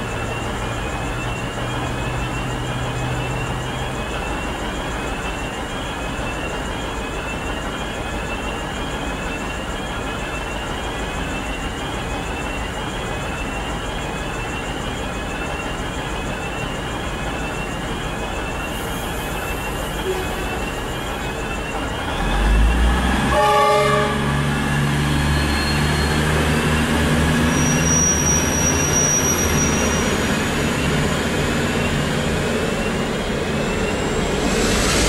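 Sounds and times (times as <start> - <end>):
diesel railcar idling: 0.0 - 35.0
faint rising chirp: 18.5 - 23.1, 24.7 - 35.0.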